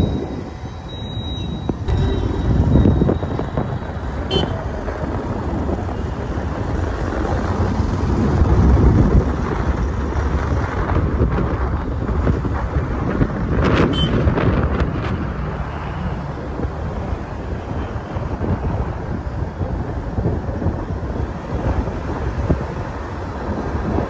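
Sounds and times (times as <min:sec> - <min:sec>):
motorcycle engine rumble: 0:00.0 - 0:15.6
road and wind noise: 0:00.0 - 0:24.0.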